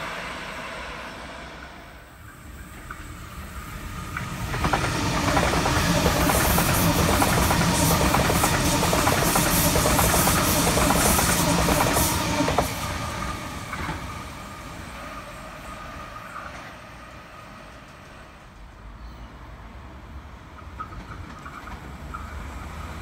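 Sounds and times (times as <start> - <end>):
electric train passing: 0.0 - 23.0
wheel and rail clatter: 20.6 - 23.0.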